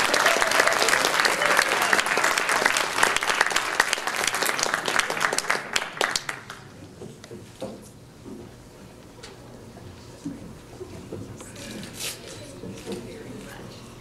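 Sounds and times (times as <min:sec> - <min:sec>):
audience applauding: 0:00.0 - 0:06.8.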